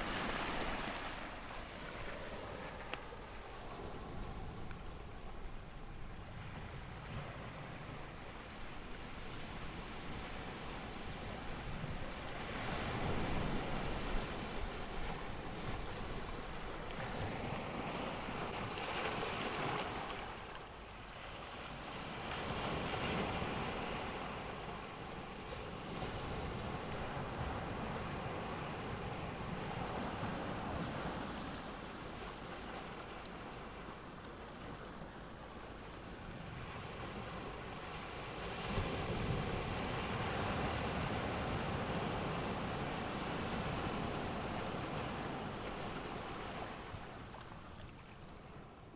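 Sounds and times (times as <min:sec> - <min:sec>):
waves on pebble shore: 0:00.0 - 0:04.6, 0:12.5 - 0:20.5
sea surf washing over rocks: 0:00.0 - 0:05.1
wind rumble on microphone: 0:00.0 - 0:20.5, 0:34.6 - 0:48.9.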